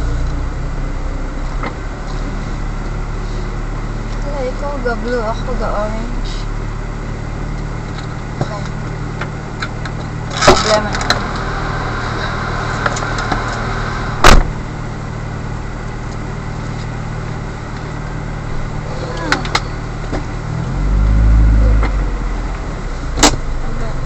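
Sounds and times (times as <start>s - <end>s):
deep rumble: 0.0s - 24.0s
vehicle engine idling: 0.0s - 24.0s.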